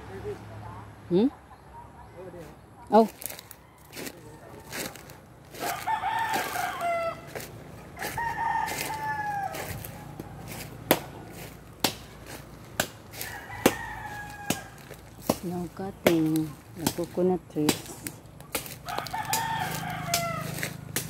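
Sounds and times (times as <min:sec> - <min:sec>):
rooster crowing: 0:03.3 - 0:11.7, 0:13.0 - 0:15.2, 0:18.7 - 0:21.0.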